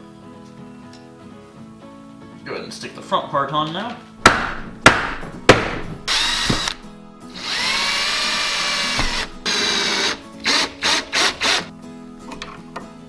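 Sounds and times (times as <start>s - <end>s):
cordless drill whining: 6.1s - 11.7s.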